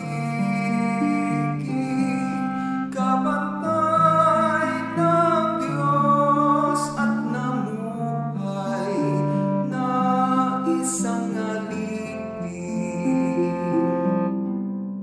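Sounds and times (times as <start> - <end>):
hymn singing: 0.0 - 14.3
instrumental accompaniment: 0.0 - 15.0.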